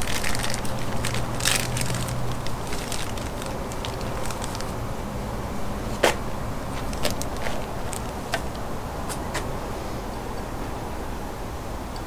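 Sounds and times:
plastic bag crinkling: 0.0 - 4.9, 6.7 - 8.5.

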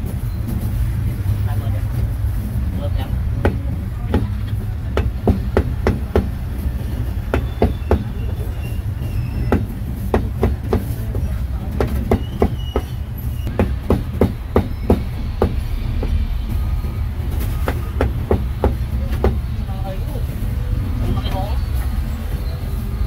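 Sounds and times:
low rumble: 14.4 - 21.2.

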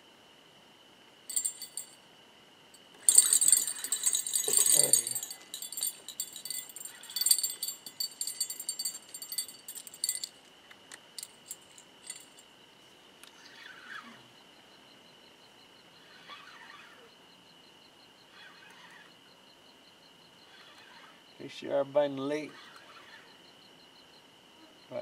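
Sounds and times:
fishing gear rattling and clinking: 1.3 - 2.0, 3.0 - 10.4, 11.2 - 12.4
high insect trill: 1.3 - 2.1, 2.8 - 12.6.

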